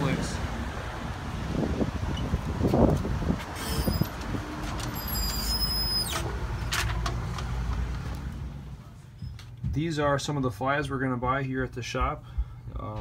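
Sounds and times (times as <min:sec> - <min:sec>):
street traffic rumble: 0:00.0 - 0:09.9.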